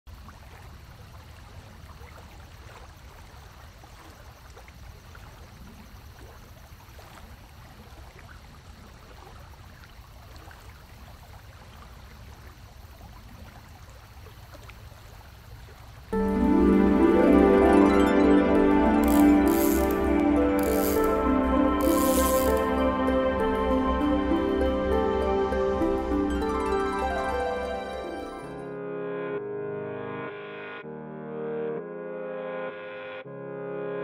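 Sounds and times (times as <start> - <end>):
music: 16.2 - 34.0
faint ticks: 19.0 - 20.0, 20.6 - 21.2, 21.8 - 22.7.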